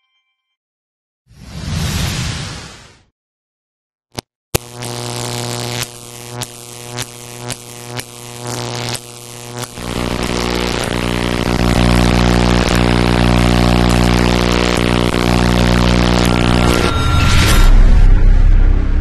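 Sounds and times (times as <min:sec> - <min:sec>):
crackling electric zaps: 0:04.1 - 0:16.9
electrical buzz: 0:04.1 - 0:19.0.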